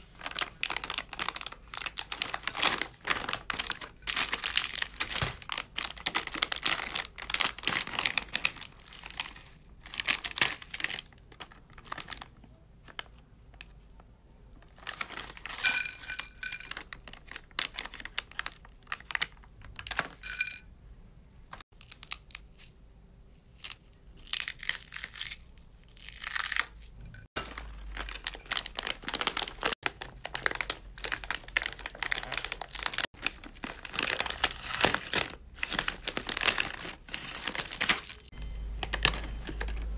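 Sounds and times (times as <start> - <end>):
plastic snack packets crinkling: 0.0 - 20.2, 26.0 - 39.9
scissors cutting packet: 27.4 - 39.9.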